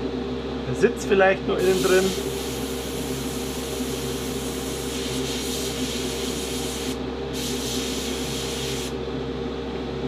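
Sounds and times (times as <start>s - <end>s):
airbrush spraying hiss: 1.6s - 9.0s.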